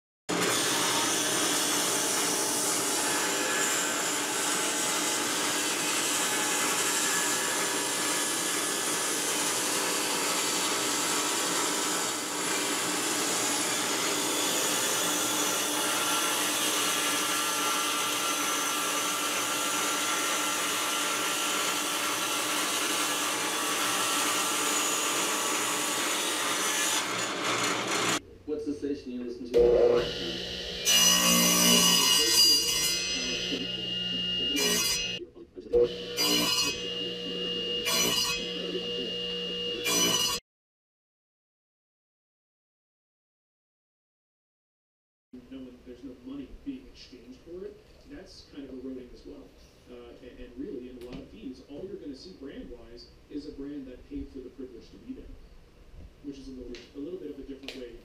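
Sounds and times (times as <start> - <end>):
table saw cutting wood: 0.3 - 28.2, 29.6 - 40.4.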